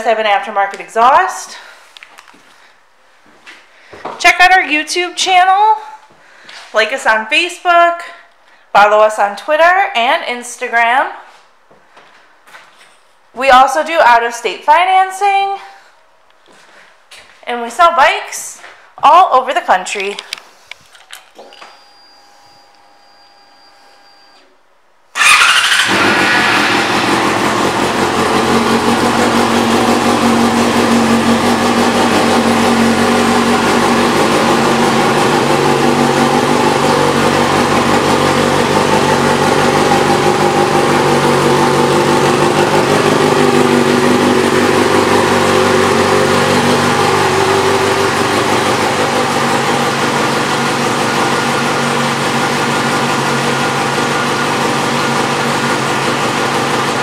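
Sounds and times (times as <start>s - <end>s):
motorcycle engine starting and idling: 25.2s - 57.0s.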